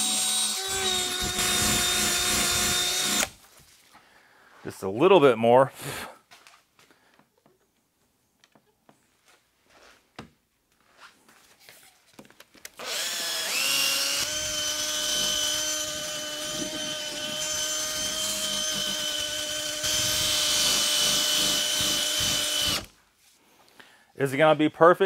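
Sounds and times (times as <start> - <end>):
cordless drill whine: 0.0 - 3.4, 12.8 - 22.9.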